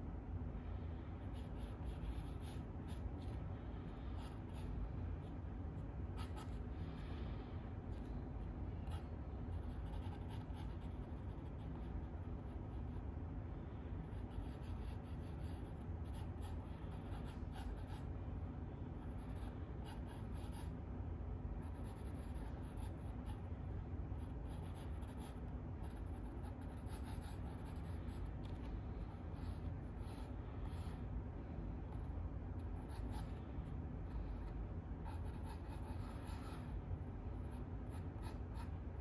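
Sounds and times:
low background hum: 0.0 - 39.0
drawing tool scratching paper: 8.8 - 13.1, 14.2 - 18.1, 34.3 - 36.7.

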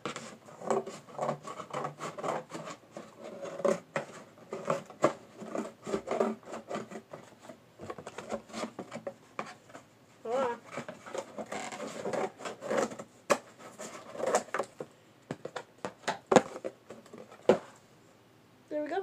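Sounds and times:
scissors cutting cardboard: 0.0 - 9.6, 10.3 - 14.8
cardboard rubbing: 0.0 - 14.8.

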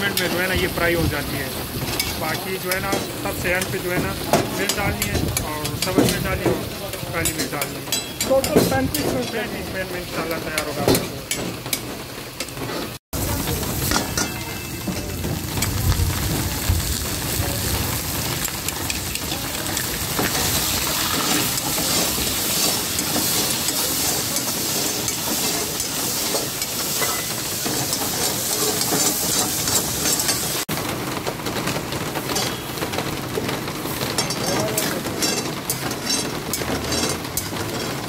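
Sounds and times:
meat sizzling in fat: 0.0 - 7.6, 13.2 - 30.7
metal spatula clattering on pan: 1.9 - 9.5, 10.5 - 12.9, 13.5 - 15.7, 18.2 - 30.6, 32.2 - 32.8, 33.9 - 38.0.

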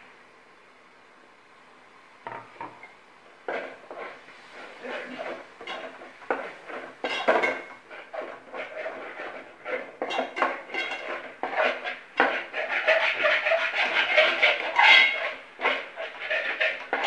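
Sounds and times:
metal spoon scraping a metal pot: 5.0 - 6.0, 6.7 - 17.0.

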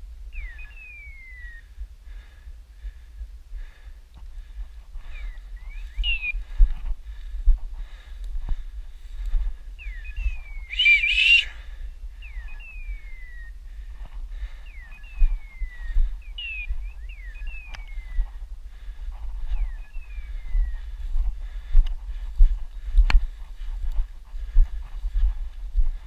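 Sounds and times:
beeper collar hawk-like cry: 9.8 - 13.5
whistle-like call: 10.0 - 13.6.

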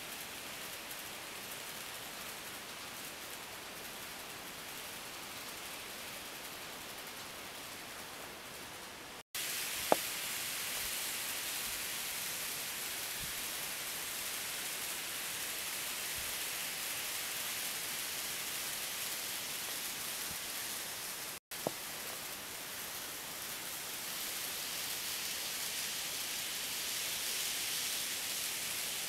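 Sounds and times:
model trains running on track: 0.0 - 29.0.

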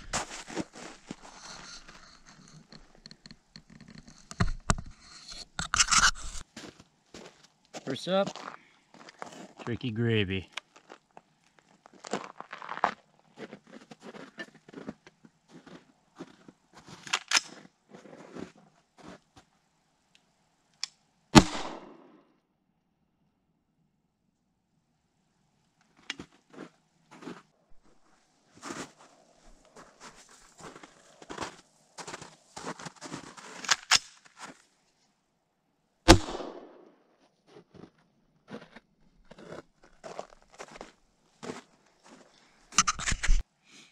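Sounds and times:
clicks scrapes and crunches: 0.1 - 6.5, 29.7 - 34.6, 42.7 - 43.4
loud rifle shot with echo: 21.4 - 22.1, 36.1 - 36.8.

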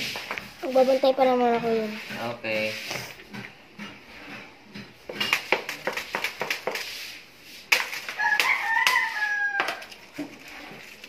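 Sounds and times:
rooster crowing: 8.1 - 10.0.

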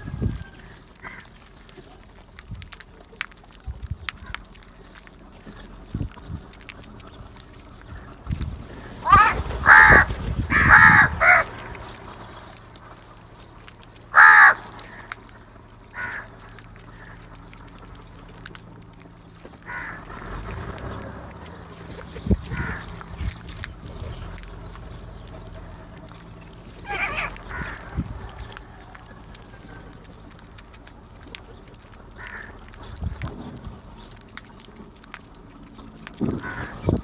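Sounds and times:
crows cawing: 0.0 - 1.4, 8.8 - 12.6, 14.1 - 17.3, 19.6 - 20.9, 22.4 - 23.3, 26.7 - 29.9, 32.1 - 32.9, 36.3 - 37.0
sharp clicks: 0.6 - 8.8, 10.8 - 37.0.

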